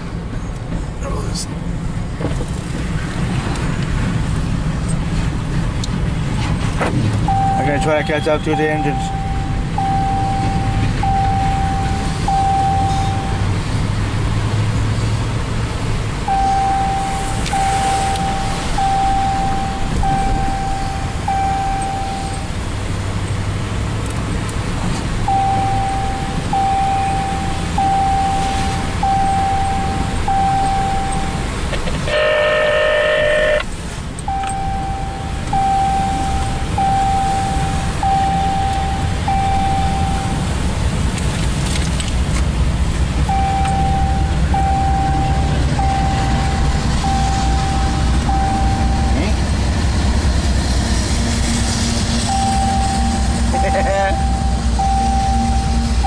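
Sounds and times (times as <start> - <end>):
car road and engine noise: 0.0 - 56.0
electronic chime: 7.3 - 13.4, 16.3 - 22.5, 34.3 - 40.4, 52.0 - 56.0
car horn blast: 32.0 - 33.7.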